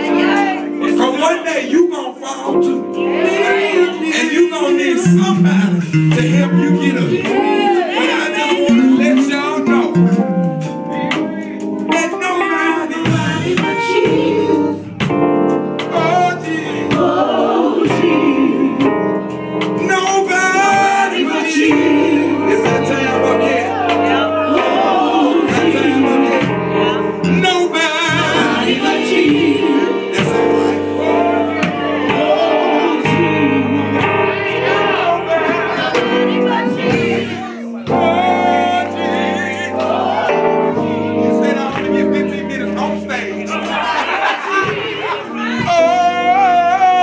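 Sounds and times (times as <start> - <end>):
band with bass and drums: 0.0 - 1.1, 5.0 - 40.8
backing singers: 0.0 - 1.7, 2.6 - 47.0
man singing lead: 0.0 - 15.0, 15.8 - 18.9, 19.7 - 47.0.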